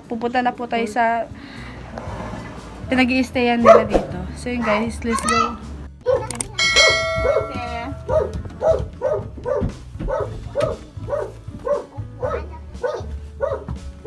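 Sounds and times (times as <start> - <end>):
dog barking: 3.6 - 4.8, 6.0 - 6.3, 7.2 - 13.8
bright chime: 6.6 - 8.2.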